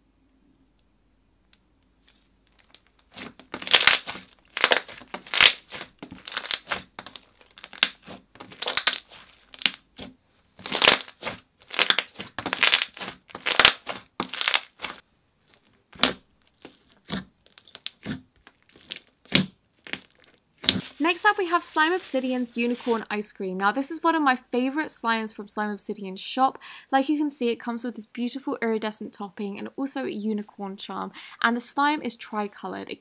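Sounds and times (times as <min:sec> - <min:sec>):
hands squishing slime: 0:02.6 - 0:15.0, 0:15.9 - 0:21.1.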